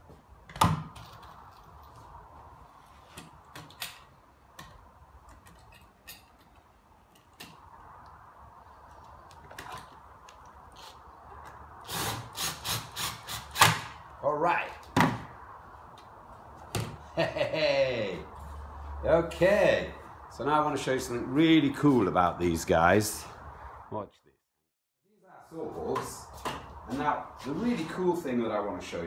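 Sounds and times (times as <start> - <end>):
cordless drill driving screw: 11.8 - 13.9.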